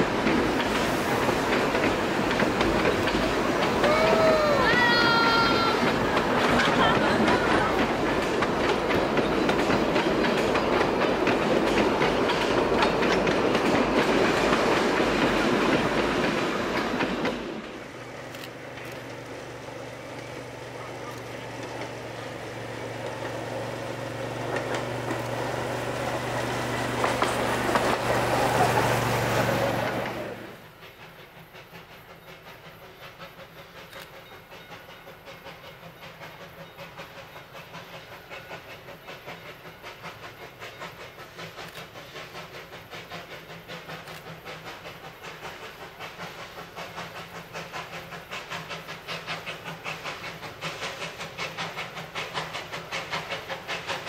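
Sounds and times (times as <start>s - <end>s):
outdoor background noise: 0.0s - 54.0s
train wheels clacking over rail joints: 0.0s - 54.0s.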